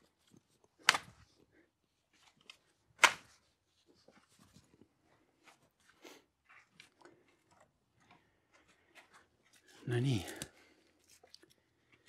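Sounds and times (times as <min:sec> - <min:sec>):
soil and roots scraping: 0:08.2 - 0:12.0.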